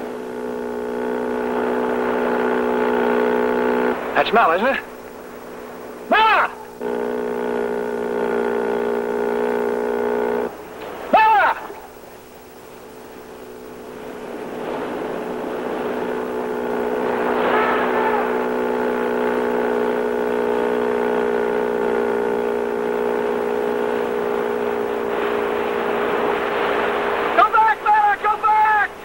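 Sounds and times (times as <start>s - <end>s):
motorboat engine running: 0.0s - 29.0s
man shouting: 6.1s - 6.7s, 11.1s - 11.9s, 17.4s - 18.6s, 27.3s - 29.0s.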